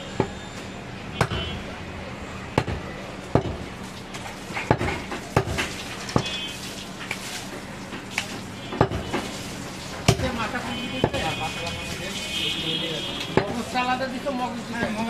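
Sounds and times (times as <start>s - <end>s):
knife chopping meat on wood: 1.2s - 1.5s, 2.6s - 3.7s, 4.6s - 6.4s, 8.2s - 9.3s, 10.1s - 10.4s, 11.0s - 11.4s, 13.3s - 13.6s.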